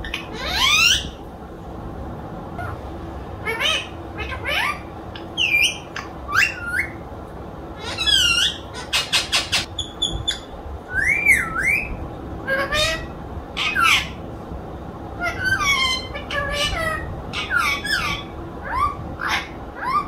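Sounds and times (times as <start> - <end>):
parakeet squawking and chirping: 0.0 - 1.2, 3.4 - 7.0, 7.8 - 14.2, 15.2 - 20.0
parakeet whistle: 5.4 - 7.0, 7.8 - 12.0.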